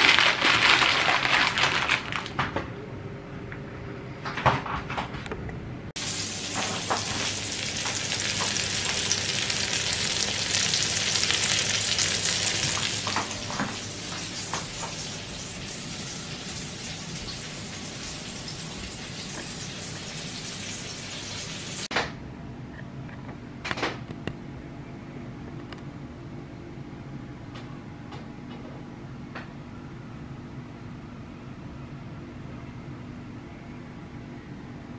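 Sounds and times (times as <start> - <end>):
food sizzling in hot fat: 6.0 - 21.9.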